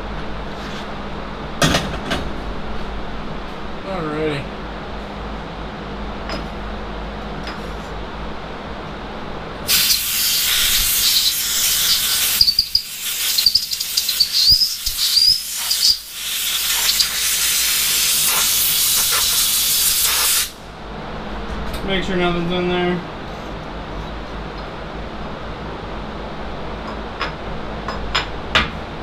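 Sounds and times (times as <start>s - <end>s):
compressed air blow gun hissing: 9.7s - 20.6s.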